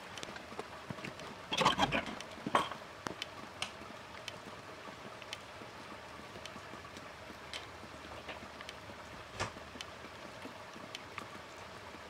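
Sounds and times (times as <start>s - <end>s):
light ticks: 0.0s - 1.3s, 3.0s - 4.5s, 5.1s - 5.7s, 6.3s - 11.6s.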